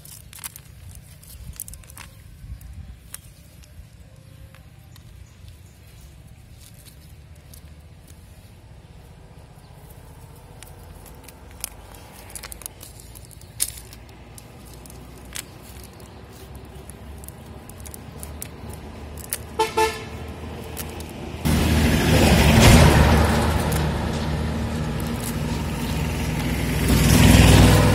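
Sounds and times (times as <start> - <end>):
road traffic rumble: 0.0 - 27.9
vehicle horn toots: 19.5 - 20.2
loud rush of noise: 21.3 - 27.9.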